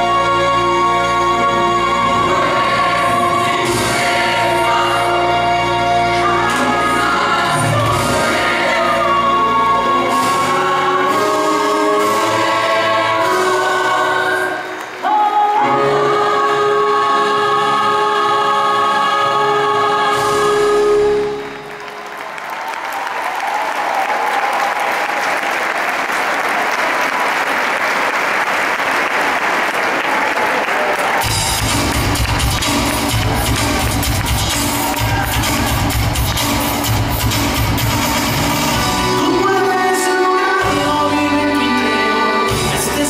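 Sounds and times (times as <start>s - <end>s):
choir-backed song: 0.0s - 21.8s, 32.7s - 43.0s
audience applause: 21.4s - 37.5s.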